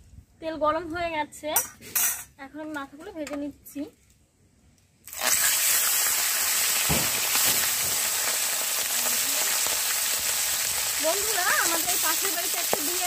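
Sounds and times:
fish sizzling in hot oil: 0:05.0 - 0:13.0.

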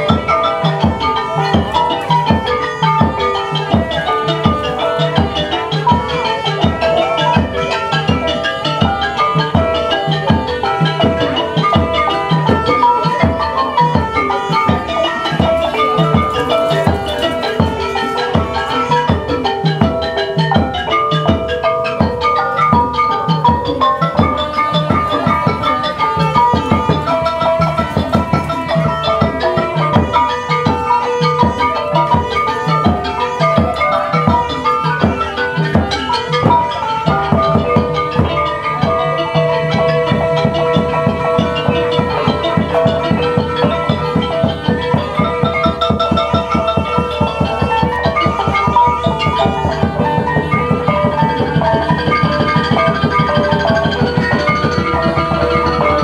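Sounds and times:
fast drum strokes: 0:00.0 - 0:56.0
pitched percussion melody: 0:00.0 - 0:56.0.

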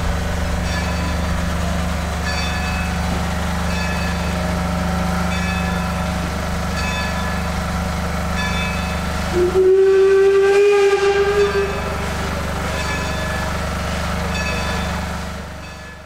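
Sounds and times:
low hum from train: 0:00.0 - 0:16.0
steam locomotive whistle blast: 0:09.2 - 0:13.0.

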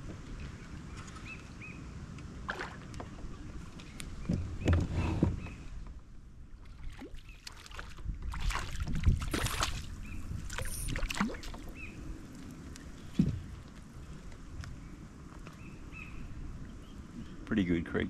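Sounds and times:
fish splashing: 0:06.7 - 0:11.8.

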